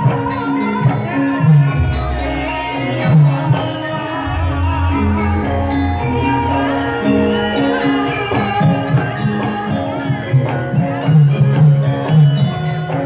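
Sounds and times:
drum strokes: 1.4s - 9.7s
metal keyed percussion ringing: 1.5s - 9.8s.

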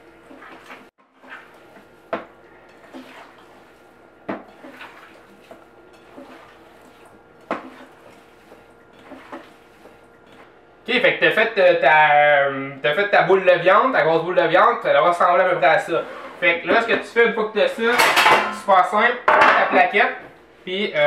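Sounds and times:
ground meat being mixed by hand: 0.0s - 11.1s
metal bowl and dishes clanking: 4.4s - 8.2s, 17.8s - 18.7s, 19.3s - 19.9s.

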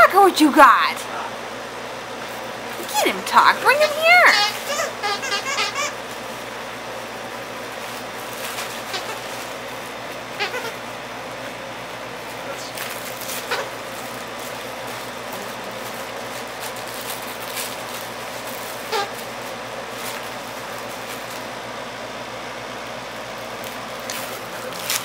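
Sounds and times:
dog toy squeaking: 3.7s - 6.0s, 10.4s - 10.8s, 13.5s - 13.7s.

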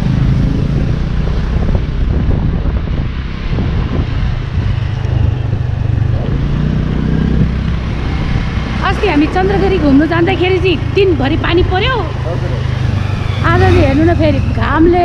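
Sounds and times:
wind noise: 0.0s - 10.0s
motor scooter engine running: 0.0s - 15.0s
road noise: 0.0s - 15.0s.

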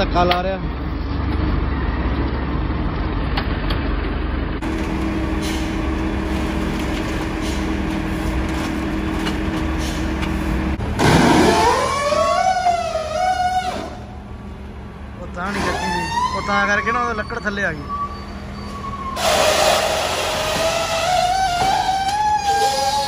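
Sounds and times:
diesel forklift engines running: 0.0s - 23.0s
forklift engine revving: 4.6s - 14.3s, 18.4s - 23.0s.

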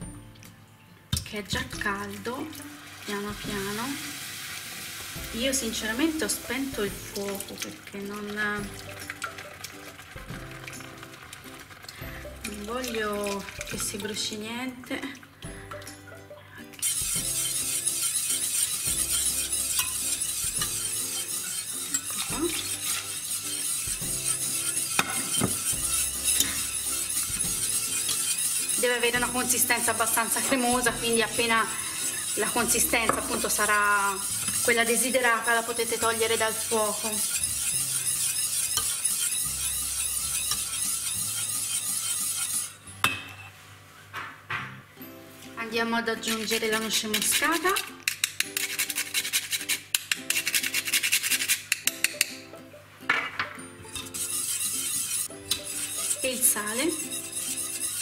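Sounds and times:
whisk scraping saucepan: 5.2s - 14.4s, 16.6s - 42.9s, 46.2s - 52.3s, 53.9s - 58.0s
metal clicks against pan: 47.9s - 48.6s, 51.7s - 52.4s.

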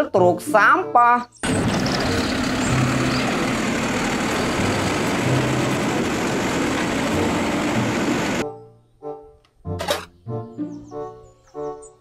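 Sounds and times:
garbage truck diesel engine running: 1.4s - 8.4s
hydraulic arm lifting trash cart: 1.4s - 8.4s.

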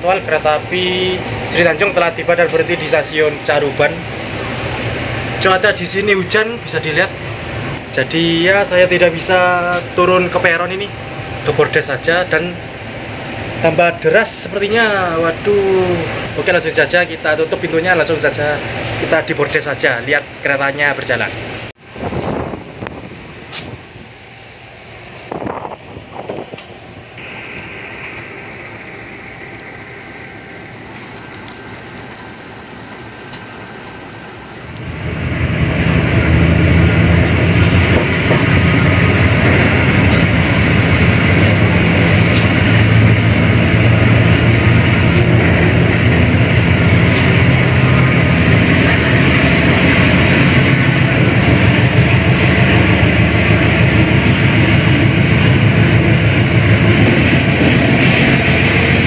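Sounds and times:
train running rumble and rattle: 0.0s - 59.0s
train wheel clicks: 37.1s - 43.2s, 43.8s - 47.8s, 48.4s - 59.0s.

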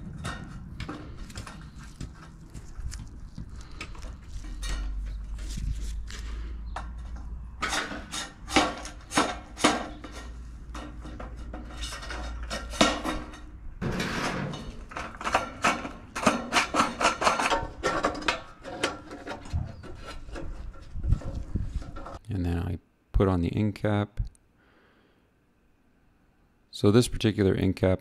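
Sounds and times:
sheet metal crinkling with pliers: 0.0s - 6.3s, 6.9s - 22.2s.

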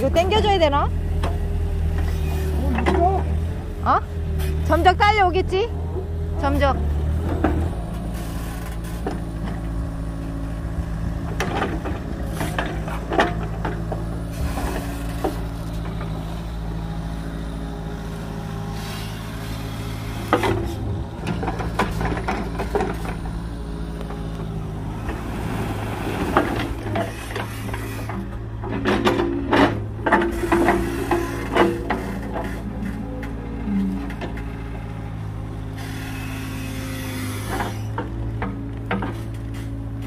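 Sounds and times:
excavator engine running: 0.0s - 40.0s
machine knocks and scrapes: 19.9s - 23.5s.

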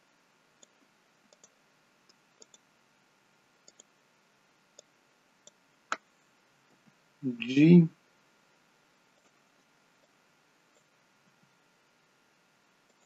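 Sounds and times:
mouse and keyboard clicks: 0.6s - 2.6s, 3.6s - 3.9s.

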